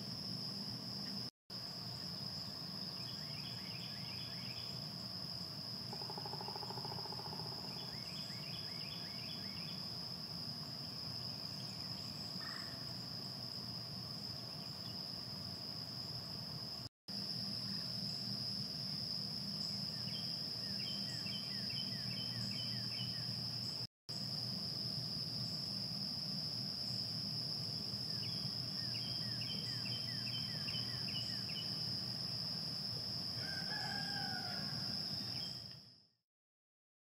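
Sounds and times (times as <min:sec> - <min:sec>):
insects trilling: 0:00.0 - 0:36.0
rooster crowing: 0:33.4 - 0:35.1.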